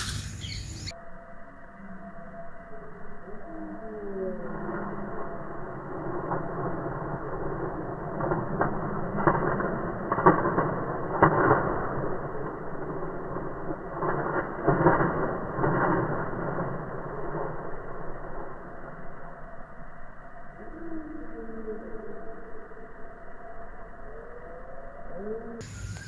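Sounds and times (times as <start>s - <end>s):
peacock feathers rattling: 0.0s - 0.9s, 4.8s - 19.2s.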